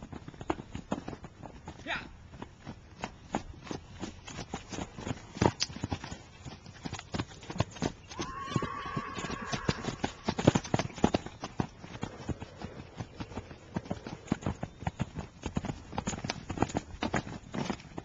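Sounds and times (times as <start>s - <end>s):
hoofbeats on sand: 0.0s - 18.0s
horse calling: 8.0s - 11.0s.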